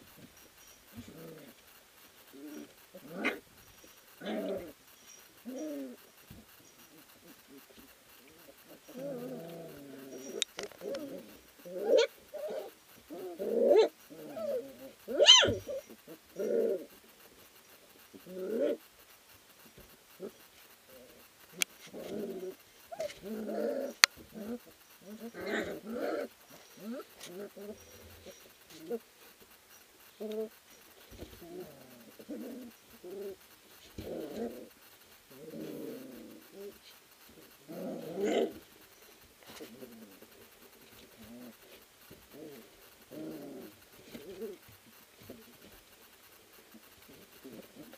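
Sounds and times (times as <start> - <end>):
puppies growling: 0.0 - 18.9, 19.7 - 29.4, 30.1 - 47.9
puppies whining and grunting: 2.3 - 16.9
puppy yelp: 15.1 - 15.8.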